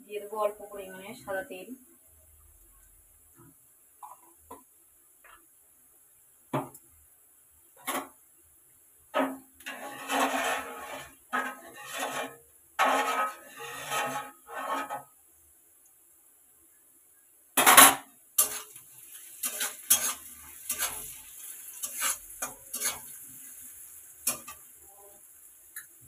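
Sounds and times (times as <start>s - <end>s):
metal spoon scraping a pot: 9.2s - 15.1s, 18.4s - 18.8s, 19.4s - 21.2s, 21.8s - 23.2s, 24.2s - 24.6s.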